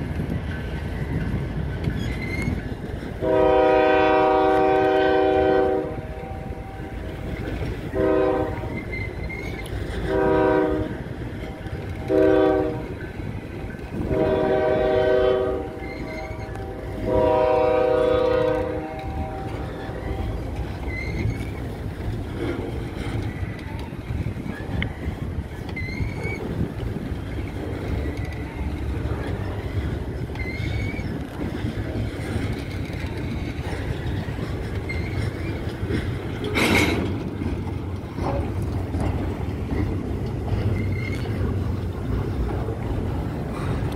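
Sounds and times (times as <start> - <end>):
train cars rumbling on rails: 0.0 - 43.9
faint squeaks: 1.8 - 2.8, 8.7 - 10.0, 15.8 - 16.8, 19.6 - 22.0, 23.0 - 26.7, 27.4 - 37.1, 40.5 - 41.7
locomotive horn blasts: 3.2 - 7.3, 7.9 - 8.8, 10.0 - 13.0, 14.0 - 20.6.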